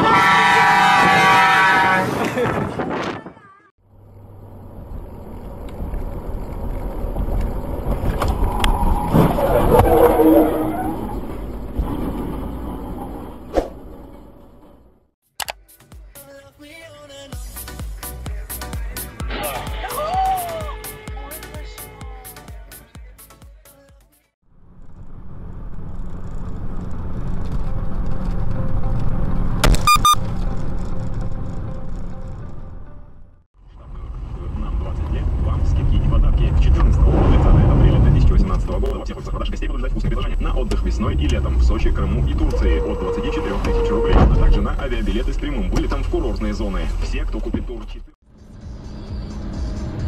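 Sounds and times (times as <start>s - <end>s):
car road and wind noise: 0.0s - 15.1s, 24.5s - 50.0s
low hum: 3.8s - 15.0s
wavering tone: 8.4s - 11.5s.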